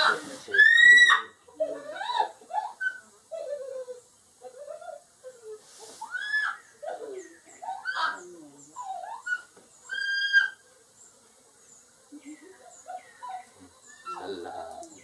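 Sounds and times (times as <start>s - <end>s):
animal chirps: 12.2s - 15.0s.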